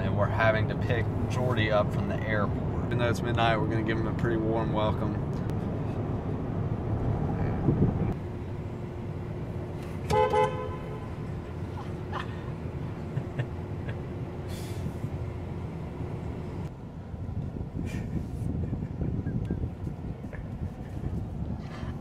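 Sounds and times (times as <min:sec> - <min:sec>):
low traffic hum: 0:00.0 - 0:22.0
road noise inside moving car: 0:00.0 - 0:22.0
car horn toot: 0:10.0 - 0:11.3.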